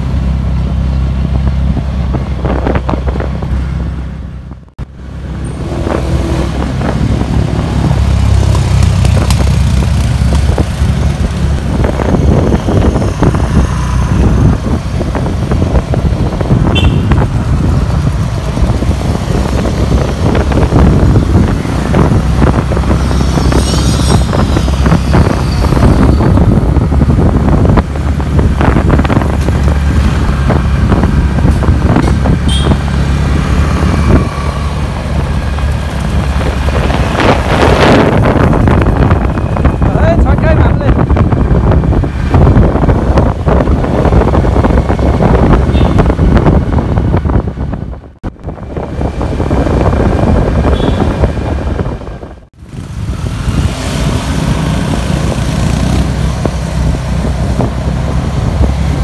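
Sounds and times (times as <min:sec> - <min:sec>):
wind buffeting microphone: 0:01.0 - 0:59.0
motorcycle engine running: 0:06.4 - 0:40.2.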